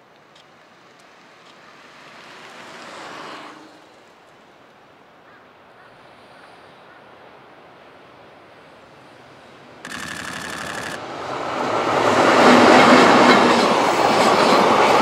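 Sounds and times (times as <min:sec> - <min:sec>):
distant freight train rushing: 0:11.0 - 0:15.0.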